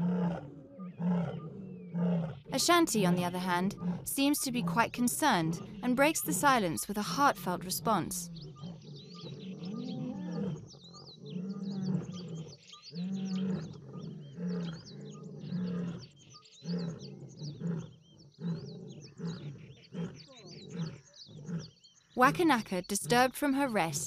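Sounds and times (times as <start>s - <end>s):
lioness roaring: 0.0s - 4.1s, 8.4s - 16.1s, 16.7s - 21.7s
distant lion calling: 0.0s - 16.0s.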